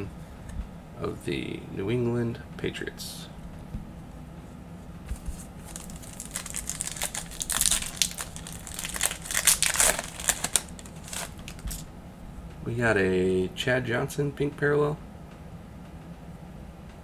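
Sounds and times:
plastic wrapper crinkling: 5.1s - 11.9s.

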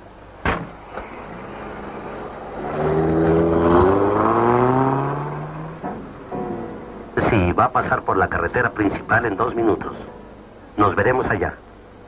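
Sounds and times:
car door shutting: 0.4s - 1.8s
car engine accelerating: 0.5s - 11.1s.

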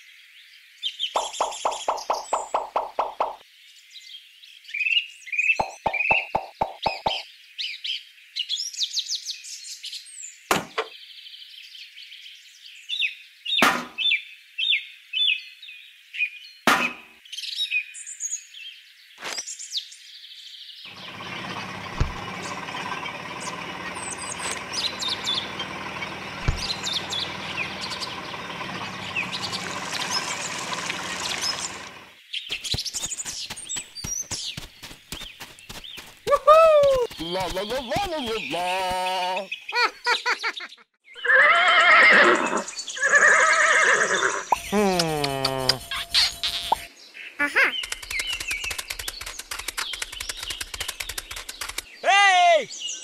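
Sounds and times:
birds chirping: 0.0s - 8.1s, 19.0s - 53.0s.

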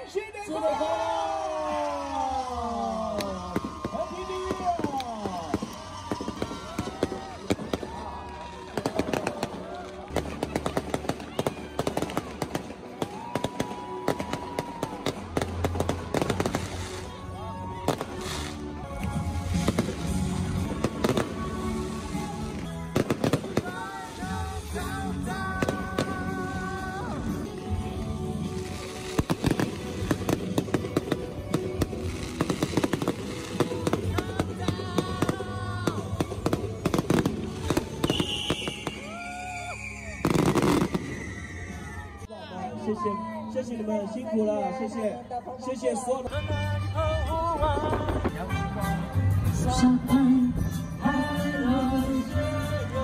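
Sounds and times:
fireworks bangs and crackles: 1.1s - 42.3s, 47.6s - 49.0s.

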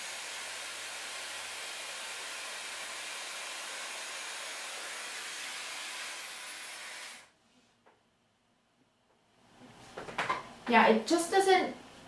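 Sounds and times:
hair styler blowing air: 0.0s - 7.3s.

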